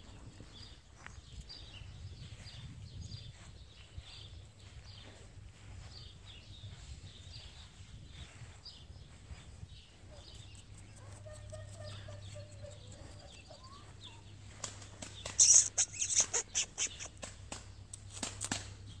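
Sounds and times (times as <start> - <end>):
faint wavering calls: 15.3 - 17.2.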